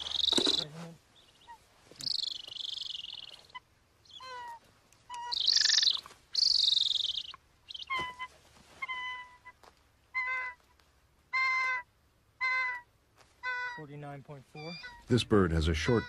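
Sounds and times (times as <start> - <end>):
eagle screeching: 0.0 - 0.8, 1.4 - 9.5, 11.3 - 16.0
eagle yelping whistles: 1.4 - 4.5, 5.1 - 9.2, 14.6 - 15.1.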